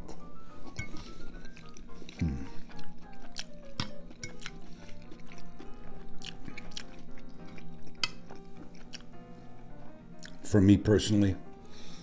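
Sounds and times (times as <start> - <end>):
soft background music: 0.0 - 12.0
wet mouth eating sounds: 1.0 - 9.2, 10.1 - 10.4
fork clicking: 7.9 - 9.0.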